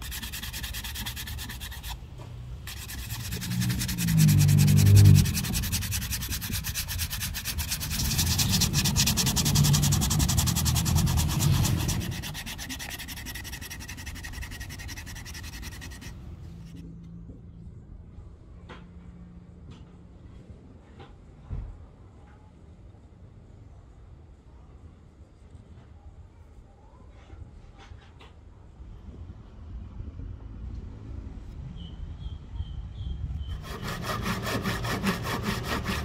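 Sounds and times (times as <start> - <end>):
wood sanding scratchy rubbing: 0.0 - 2.0, 2.6 - 16.8, 33.5 - 36.0.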